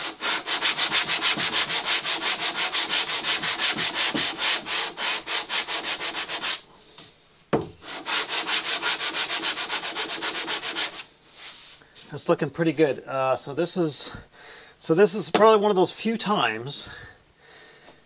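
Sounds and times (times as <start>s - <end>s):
sandpaper rubbing on wood: 0.0s - 6.6s, 7.8s - 11.8s.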